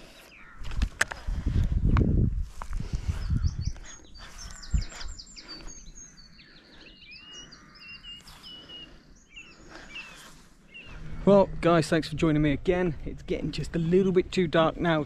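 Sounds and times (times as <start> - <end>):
songbird singing: 0.0 - 1.6, 2.5 - 15.0
low rumbles: 10.7 - 15.0.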